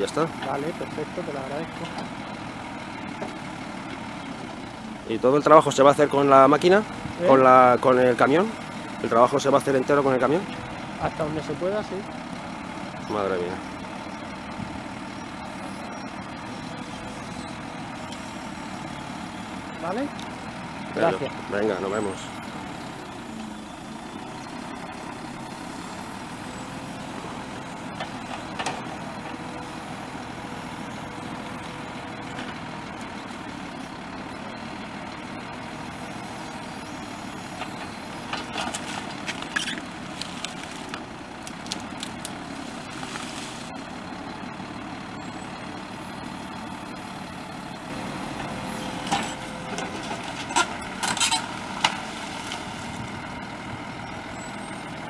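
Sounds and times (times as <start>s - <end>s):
diesel engine running: 0.0s - 55.0s
plants cracking and tearing: 38.6s - 42.4s.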